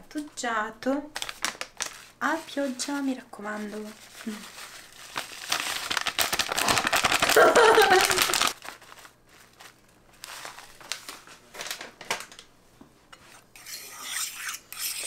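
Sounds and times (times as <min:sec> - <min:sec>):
plastic pouch crinkling: 0:01.2 - 0:12.5.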